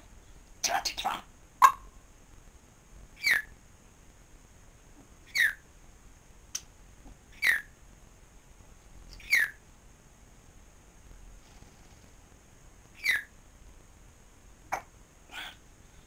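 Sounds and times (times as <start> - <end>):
parrot whistling: 9.2 - 9.6.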